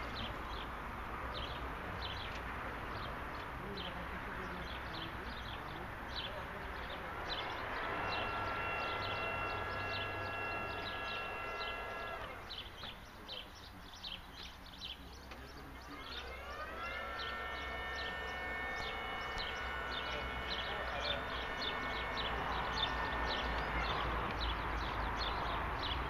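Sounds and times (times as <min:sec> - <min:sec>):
hydraulic pump motor whining: 0:05.8 - 0:13.6, 0:15.2 - 0:26.0.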